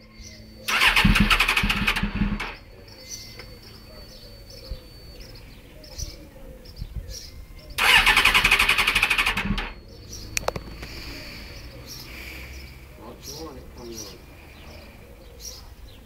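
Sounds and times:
motorcycle starter cranking: 0.7 - 2.6, 7.8 - 9.8
sharp clicks: 7.8 - 11.0.

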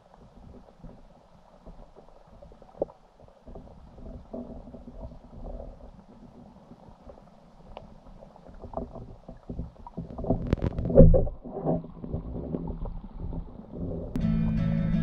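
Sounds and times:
background music: 14.2 - 15.0.

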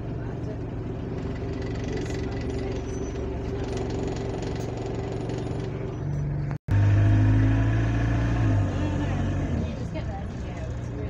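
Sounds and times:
bus engine droning: 0.0 - 11.0.

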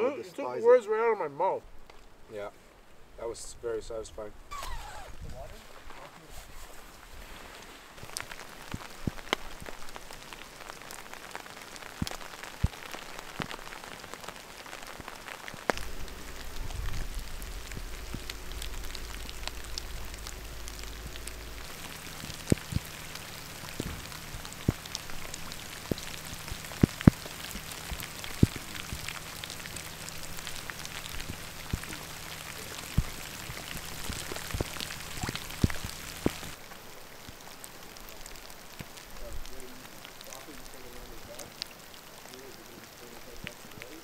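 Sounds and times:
rain and wet snow hissing: 0.0 - 44.0
drops ticking: 8.0 - 36.6.

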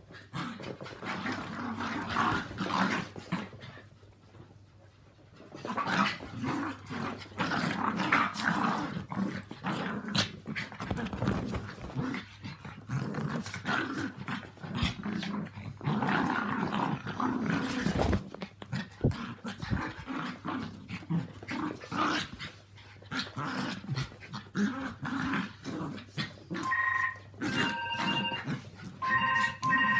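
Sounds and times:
small dogs growling: 0.2 - 3.8, 5.6 - 26.6
electronic beeping: 26.6 - 29.9.

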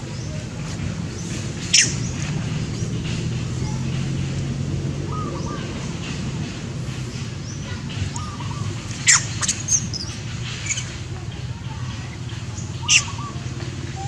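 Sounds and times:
faint bird chirps: 7.7 - 11.0, 11.7 - 14.0.

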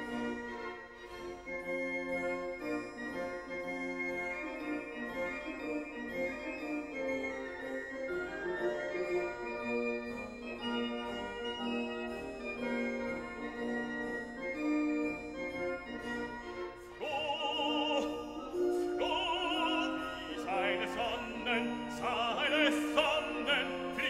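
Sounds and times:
slow keyboard melody: 0.0 - 24.0
operatic voice singing: 17.0 - 24.0.

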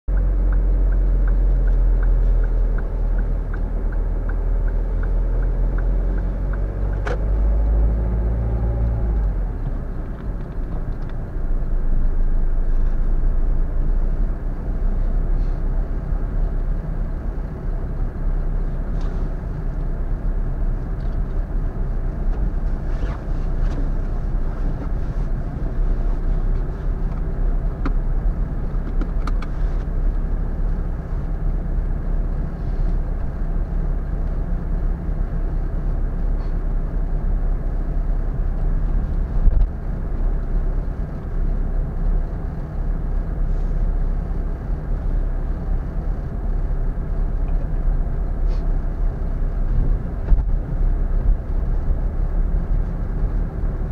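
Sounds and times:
regular ticking: 0.1 - 7.0.

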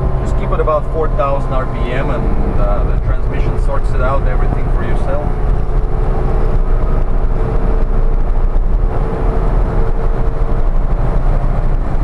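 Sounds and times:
road and wind rumble: 0.0 - 12.0
steady whine: 0.0 - 12.0
van engine accelerating: 0.0 - 12.0.

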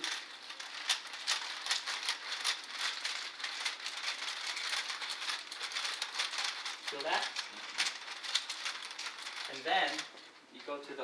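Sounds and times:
massage roller clicking and rattling: 0.0 - 11.0.

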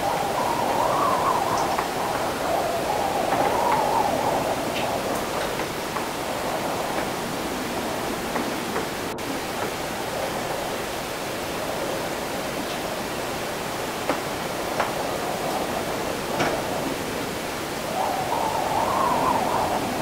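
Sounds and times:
wind: 0.0 - 20.0.

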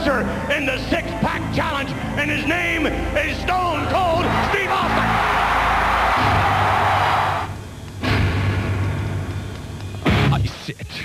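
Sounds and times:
loud rushing noise: 4.3 - 8.7
booming hit: 8.0 - 9.0.

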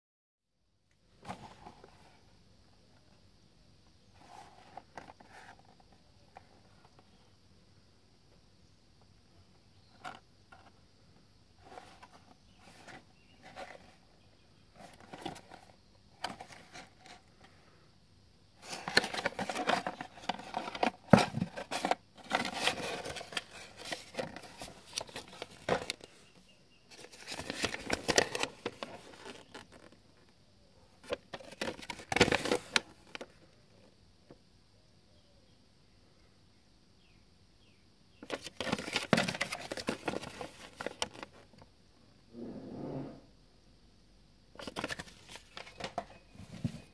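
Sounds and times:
paper leaflet crinkling and rustling: 18.6 - 26.3, 26.9 - 30.0, 31.0 - 33.3, 38.2 - 41.6, 44.6 - 46.9.

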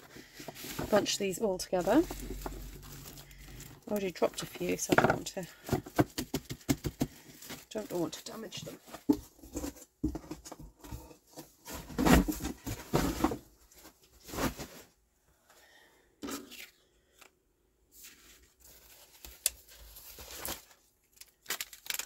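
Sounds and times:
paper rustling and scraping on wood: 0.0 - 5.6.

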